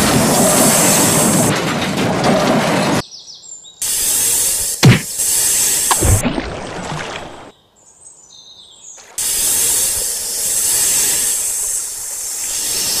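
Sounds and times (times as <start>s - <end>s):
snake hiss: 3.8s - 6.2s, 9.0s - 13.0s.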